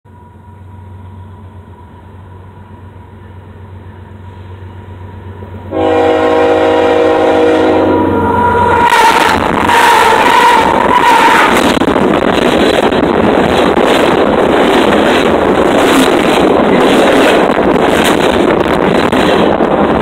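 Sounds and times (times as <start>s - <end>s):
diesel locomotive rumble: 0.0s - 20.0s
locomotive air horn chord: 5.7s - 11.2s.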